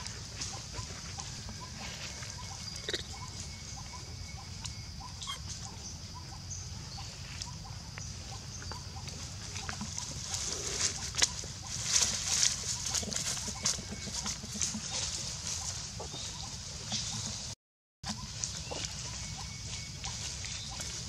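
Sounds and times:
faint animal calls: 0:00.0 - 0:17.4
dry leaves crackling underfoot: 0:09.0 - 0:17.4, 0:18.1 - 0:21.0.

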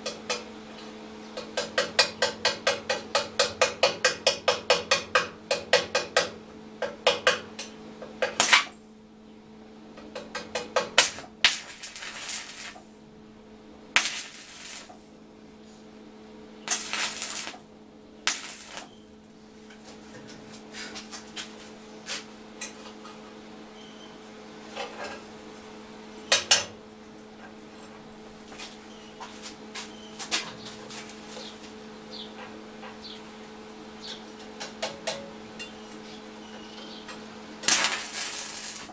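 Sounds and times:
steady low hum: 0:00.0 - 0:38.9
crackling welding arc: 0:08.2 - 0:08.8, 0:10.8 - 0:13.0, 0:14.0 - 0:15.1, 0:16.6 - 0:19.0, 0:37.6 - 0:38.9.

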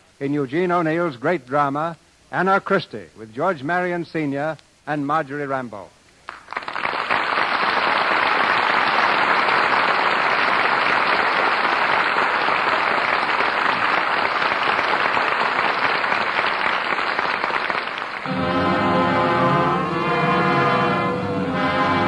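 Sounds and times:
audience applauding: 0:06.3 - 0:18.6.

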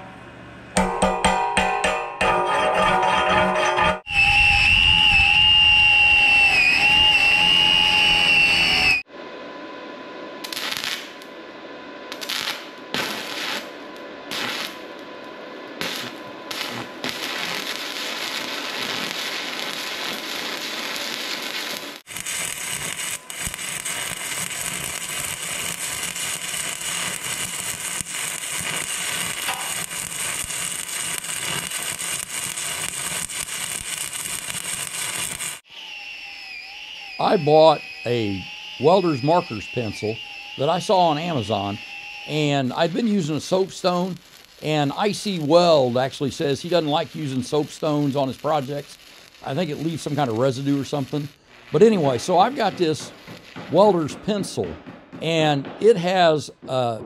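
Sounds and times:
angle grinder whining: 0:02.8 - 0:09.1, 0:15.7 - 0:44.7
arc welding crackling: 0:10.4 - 0:11.4, 0:12.1 - 0:54.6.

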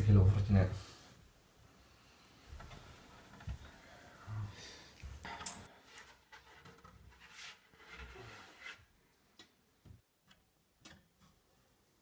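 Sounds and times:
wooden shutter rustling and scraping: 0:05.3 - 0:09.0.

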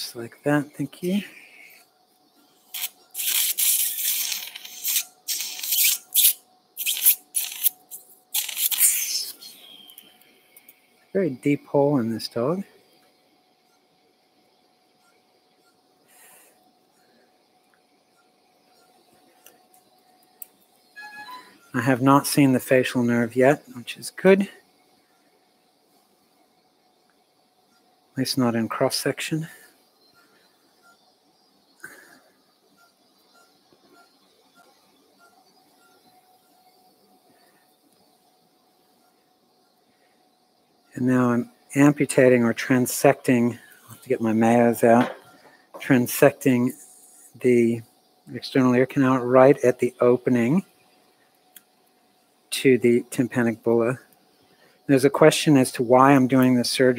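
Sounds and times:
surgical suction hissing: 0:00.6 - 0:10.9, 0:41.0 - 0:47.5
patient monitor high beeps: 0:21.0 - 0:22.0.

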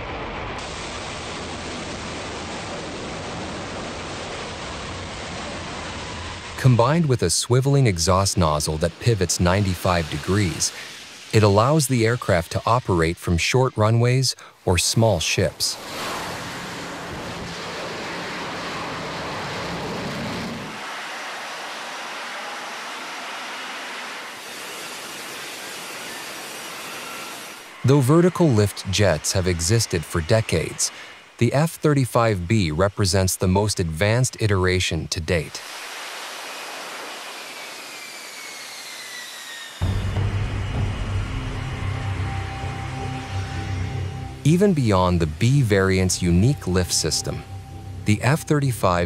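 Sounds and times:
jet engine rushing: 0:00.0 - 0:34.6, 0:35.2 - 0:49.0.

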